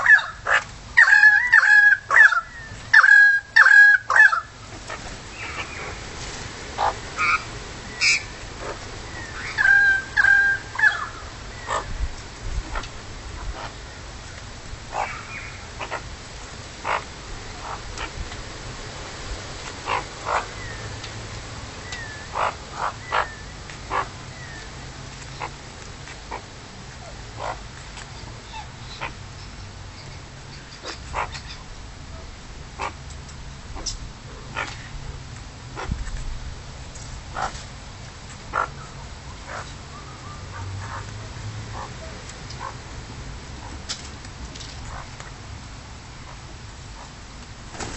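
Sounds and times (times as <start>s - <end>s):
magpies calling: 0.0s - 6.1s, 6.8s - 12.0s, 14.9s - 16.1s, 16.8s - 18.2s, 19.8s - 21.0s, 21.8s - 25.6s, 26.3s - 31.7s, 33.8s - 34.9s, 37.3s - 37.6s, 38.5s - 42.8s, 44.8s - 45.2s.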